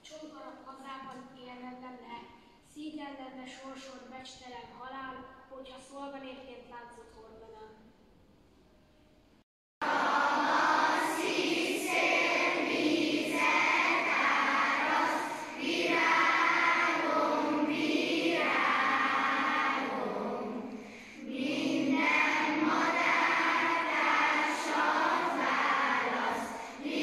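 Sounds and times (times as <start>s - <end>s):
children's choir singing: 9.8s - 27.0s.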